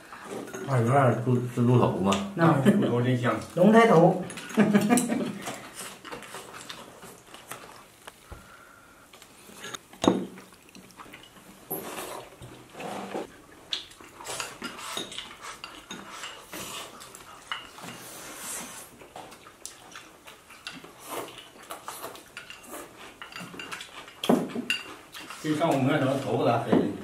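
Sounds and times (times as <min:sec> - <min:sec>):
chopsticks clinking on bowls: 0:04.2 - 0:07.7, 0:14.0 - 0:18.1, 0:19.7 - 0:26.4.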